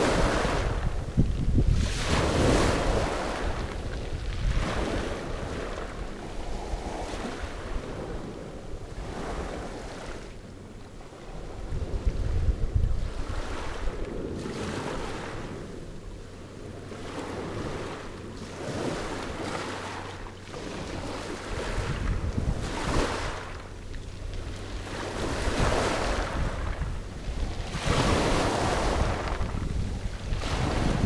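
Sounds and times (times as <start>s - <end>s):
waves washing over pebbles: 0.0s - 10.3s, 16.9s - 31.0s
wind buffeting microphone: 0.0s - 31.0s.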